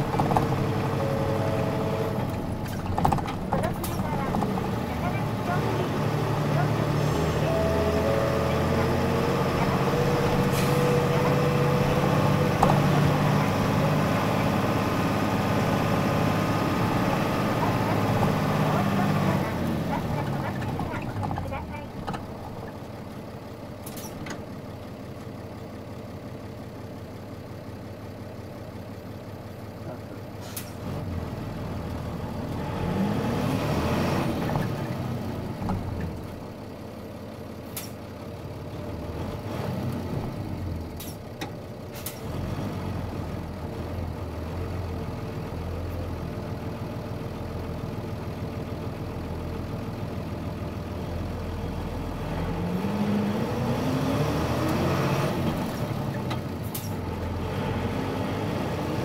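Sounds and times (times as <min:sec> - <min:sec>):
bus diesel engine revving: 0:00.0 - 0:24.6, 0:30.0 - 0:36.7, 0:37.6 - 0:46.8, 0:47.4 - 0:59.0.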